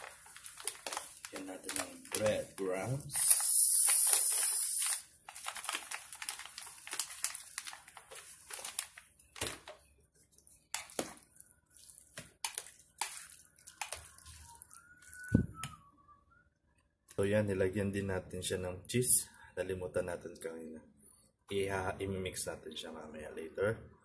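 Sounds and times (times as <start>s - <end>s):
breadcrumbs pattering onto food: 0.0s - 3.5s, 4.2s - 15.8s.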